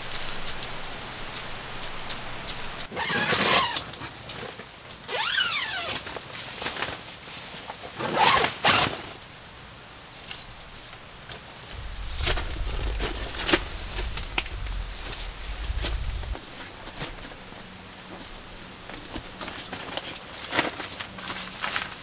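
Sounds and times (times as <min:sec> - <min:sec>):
camping gear rustling and clattering: 0:00.0 - 0:22.0
low rumble: 0:11.7 - 0:17.5.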